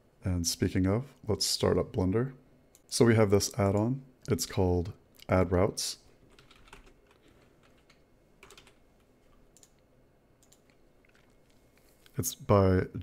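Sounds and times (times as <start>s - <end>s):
faint keyboard clicks: 6.3s - 9.8s, 10.4s - 12.2s.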